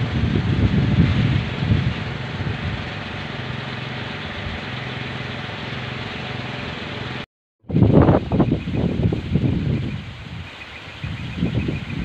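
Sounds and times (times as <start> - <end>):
wind buffeting microphone: 0.0 - 5.9, 7.7 - 12.0
wooden propellers whirring: 0.0 - 7.2.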